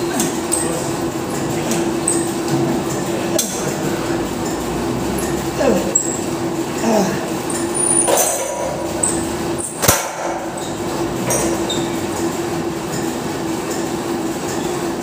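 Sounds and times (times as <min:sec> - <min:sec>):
gym weights clanking: 0:00.0 - 0:14.8
gym room rumble and hum: 0:00.0 - 0:15.0.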